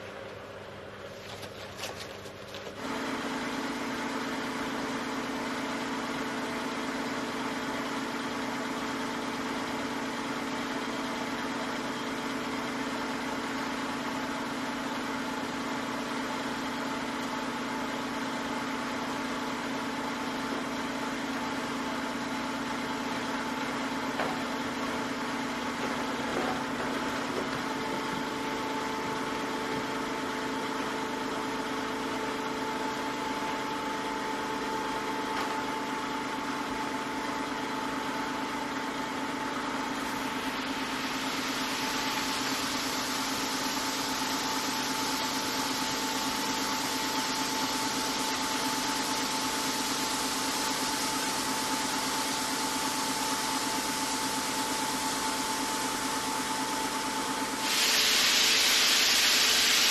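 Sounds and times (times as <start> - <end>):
sprayer pump humming: 23.0 - 59.9
spray gun hissing: 57.6 - 59.9.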